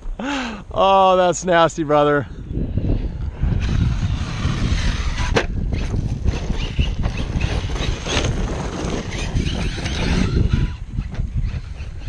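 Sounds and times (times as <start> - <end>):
wind rumble on microphone: 2.2 - 12.0
toy truck driving over gravel: 3.6 - 12.0.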